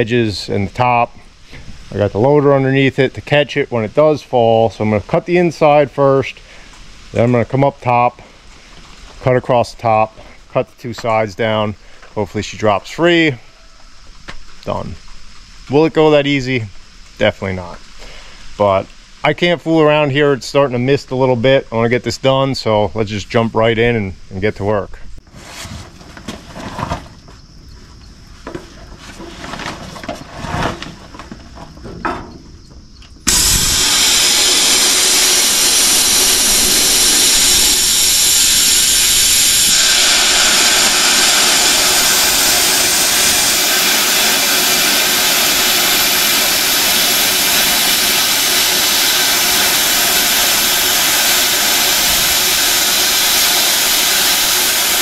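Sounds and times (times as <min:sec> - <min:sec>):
knocks and clunks: 0:28.4 - 0:33.2
plasma cutter hissing: 0:33.2 - 0:55.0.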